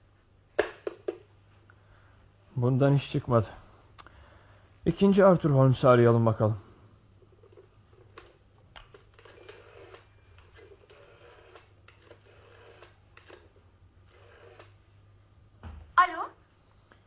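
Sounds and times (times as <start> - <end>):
telephone dialling clicks: 7.5 - 14.8.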